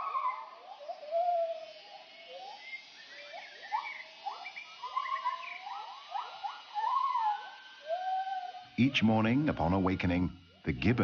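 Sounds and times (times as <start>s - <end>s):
gibbons whooping calls: 0.0s - 11.0s.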